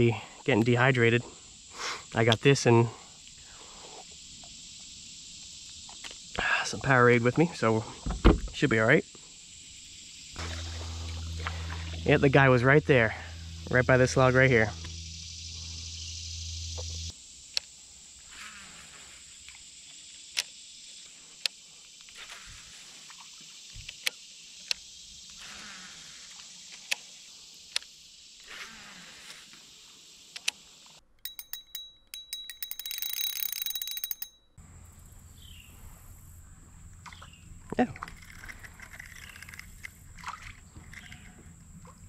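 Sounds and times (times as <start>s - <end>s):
insects humming: 0.0s - 42.0s
rapid ticking with high tone: 31.2s - 34.6s.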